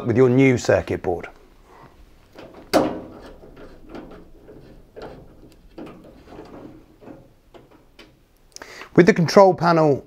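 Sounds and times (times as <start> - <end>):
light clicks and knocks: 2.2 - 8.6.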